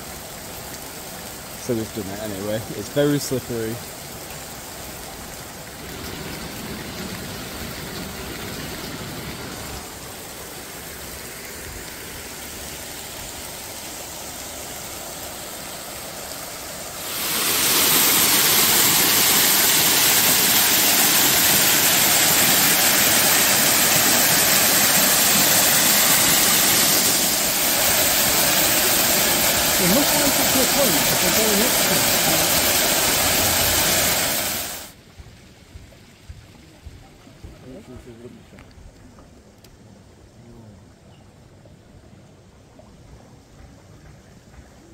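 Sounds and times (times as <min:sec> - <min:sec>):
fountain water splashing: 0:00.0 - 0:38.4
faint outdoor background: 0:34.2 - 0:44.9.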